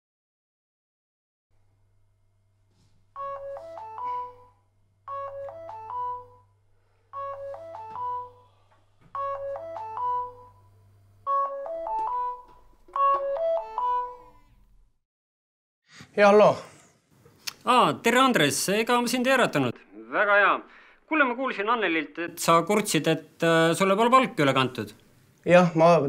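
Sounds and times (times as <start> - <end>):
mobile phone ringtone: 3.2 - 6.5, 7.1 - 8.5, 9.1 - 14.5.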